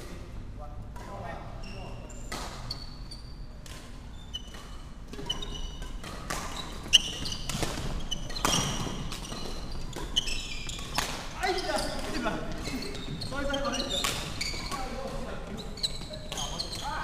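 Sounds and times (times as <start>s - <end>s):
rackets striking shuttlecock: 2.3s - 2.7s, 3.6s - 11.3s
shoes squeaking on wooden floor: 4.1s - 17.0s.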